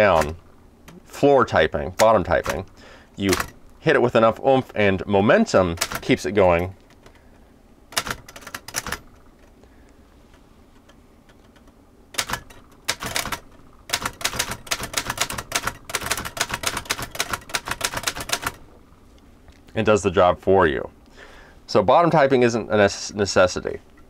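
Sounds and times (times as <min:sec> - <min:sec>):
manual typewriter keystrokes: 0:00.0 - 0:00.4, 0:01.9 - 0:03.6, 0:05.6 - 0:06.7, 0:07.9 - 0:09.2, 0:11.3 - 0:18.6.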